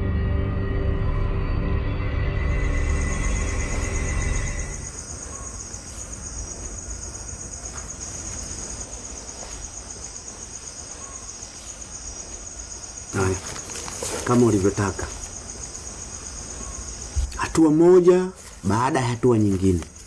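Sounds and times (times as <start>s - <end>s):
eerie soundtrack music: 0.0s - 5.1s
crickets chirping: 2.2s - 20.0s.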